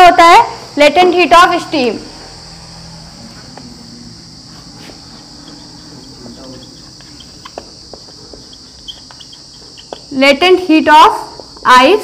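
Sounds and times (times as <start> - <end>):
high-pitched drone: 1.5 - 10.2
marker squeaking on whiteboard: 4.5 - 10.2.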